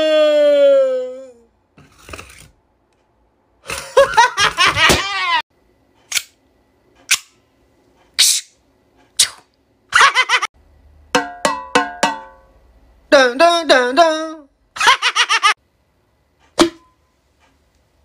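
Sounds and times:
man wailing and sobbing: 0:00.0 - 0:01.5.

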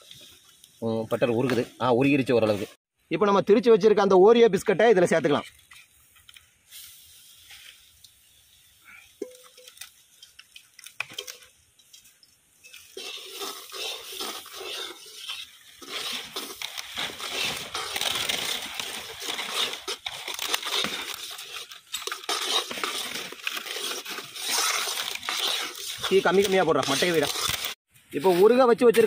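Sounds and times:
crunching and scraping while mixing: 0:12.6 - 0:29.0.

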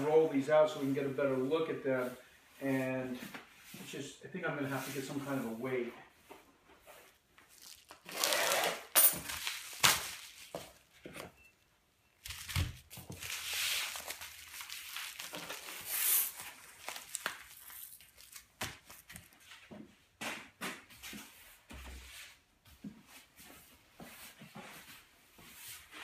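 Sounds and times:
bubble wrap crinkling: 0:07.1 - 0:11.0, 0:12.2 - 0:19.5.

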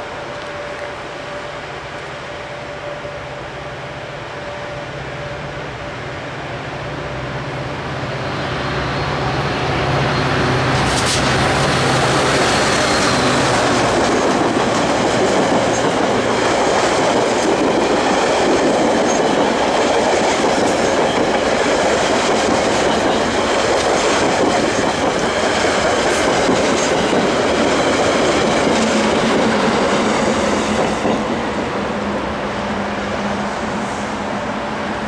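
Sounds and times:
train wheels on rails: 0:06.8 - 0:35.0
clickety-clack over rail joints: 0:10.7 - 0:31.4.

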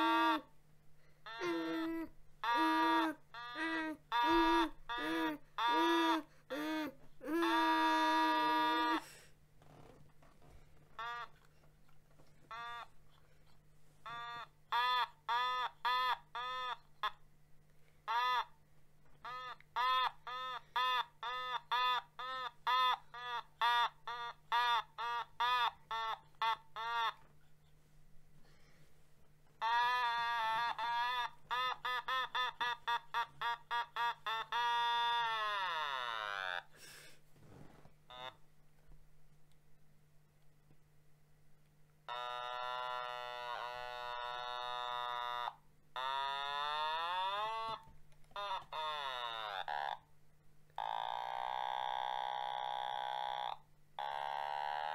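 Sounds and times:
buzzy electronic toy synthesizer: 0:00.0 - 0:00.5, 0:01.2 - 0:09.0, 0:11.0 - 0:11.5, 0:12.5 - 0:13.0, 0:14.0 - 0:17.2, 0:18.0 - 0:18.6, 0:19.2 - 0:27.2, 0:29.6 - 0:36.7, 0:42.0 - 0:50.1, 0:50.8 - 0:54.9.

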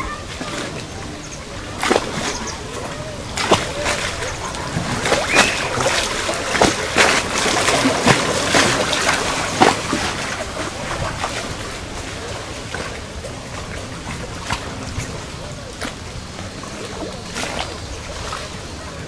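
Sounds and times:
water lapping and splashing: 0:00.0 - 0:19.0
sharp water slaps: 0:01.7 - 0:11.8.

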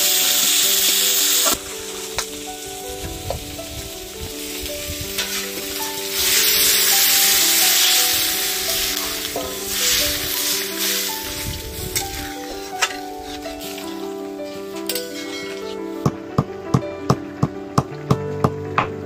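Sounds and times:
water poured into hot pan: 0:00.0 - 0:15.9
curry sizzling in a pan: 0:00.0 - 0:16.1
background music: 0:00.0 - 0:19.0
metal spatula stirring: 0:04.4 - 0:16.1.

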